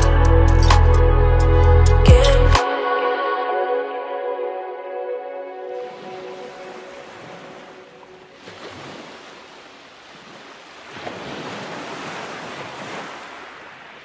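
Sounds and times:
sea waves washing onto beach: 5.8s - 14.0s.

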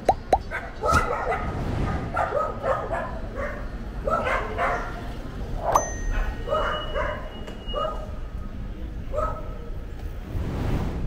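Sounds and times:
dog barking: 0.5s - 5.0s, 6.1s - 8.2s, 9.1s - 9.6s.

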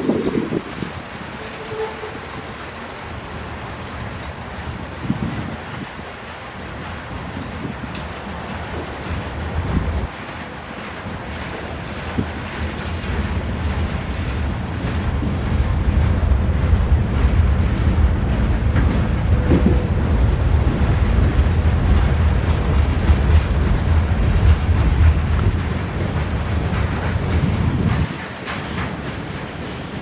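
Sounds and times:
freight train rumbling past: 0.0s - 30.0s.

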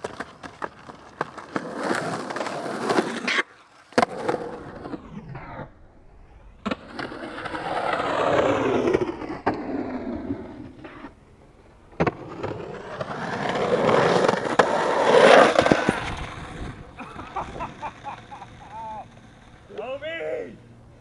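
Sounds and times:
skateboard clacking on concrete: 0.0s - 4.4s, 12.0s - 19.9s
skateboard wheels rolling on concrete: 0.0s - 21.0s.

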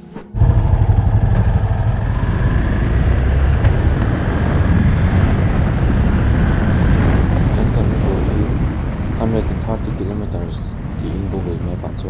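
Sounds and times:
motorcycle engine running: 0.2s - 7.7s
wind rush on microphone: 0.4s - 12.0s.

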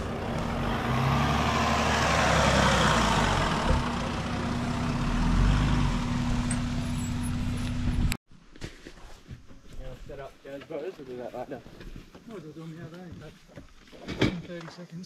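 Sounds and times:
vehicle engine driving past: 0.0s - 8.0s.

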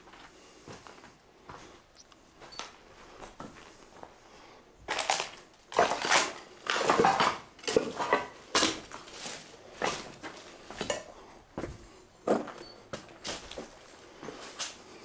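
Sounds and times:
footsteps crunching over rubble: 0.0s - 4.2s, 4.8s - 15.0s
loose pieces clattering: 4.9s - 8.8s.

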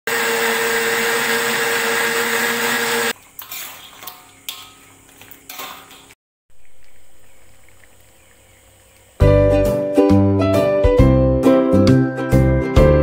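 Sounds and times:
blender motor running: 0.1s - 3.2s.

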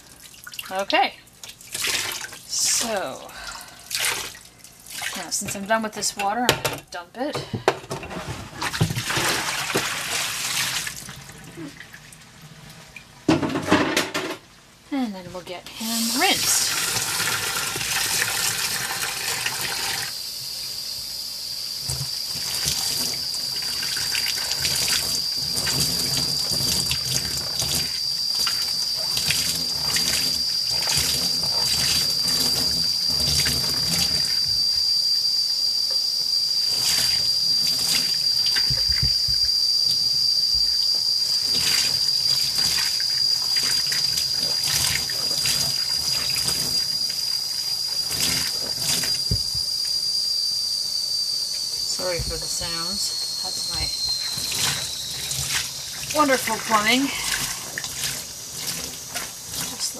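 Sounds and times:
tap water splashing into sink: 8.6s - 11.2s
high whistle from plumbing: 15.8s - 59.9s.

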